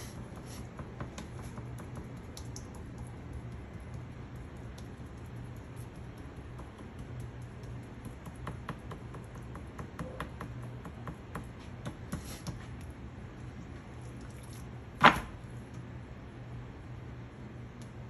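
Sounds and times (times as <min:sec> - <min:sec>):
low steady hum: 0:00.0 - 0:18.0
light taps and ticks: 0:00.8 - 0:11.6.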